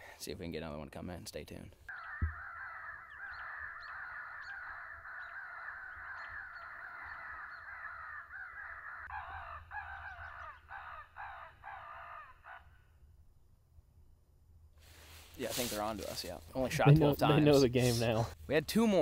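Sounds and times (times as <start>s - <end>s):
crows cawing: 1.9s - 13.0s.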